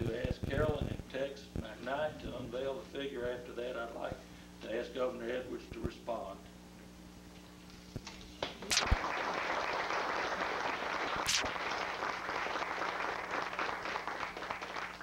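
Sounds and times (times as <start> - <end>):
audience applauding: 8.9 - 15.0.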